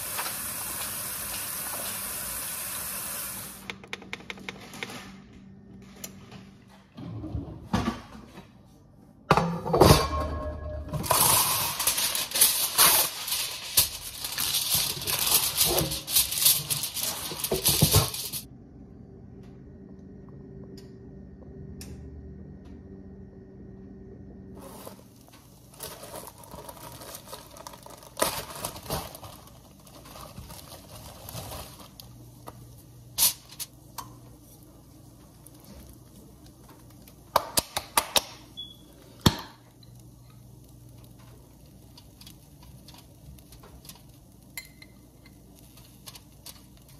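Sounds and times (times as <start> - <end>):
aluminium foil crinkling: 11.0 - 18.5, 24.6 - 33.8, 34.6 - 37.2, 40.0 - 46.9
plastic bag rustling: 11.0 - 18.5, 24.6 - 32.2.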